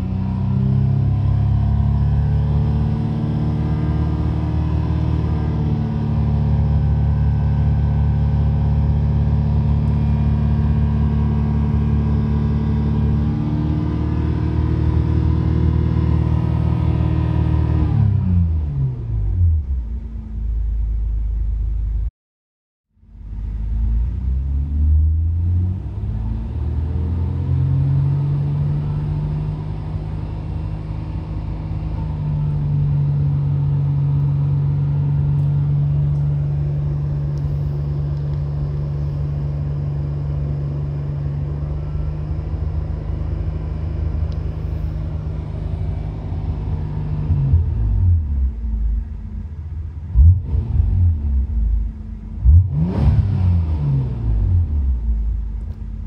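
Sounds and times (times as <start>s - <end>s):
engine revving: 0.0s - 19.8s, 23.4s - 49.4s, 50.0s - 56.0s
car engine idling: 28.1s - 52.9s, 54.2s - 56.0s.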